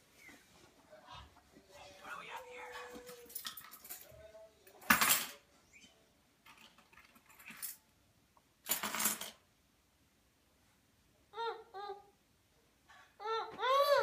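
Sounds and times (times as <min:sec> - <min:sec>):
jangling rattles: 0:03.0 - 0:04.2.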